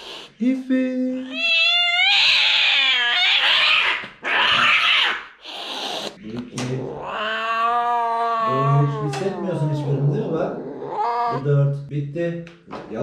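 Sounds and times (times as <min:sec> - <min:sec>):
cat hissing and spitting: 0:00.0 - 0:00.4, 0:05.4 - 0:06.2
cat yowling: 0:01.2 - 0:06.1, 0:06.8 - 0:11.5.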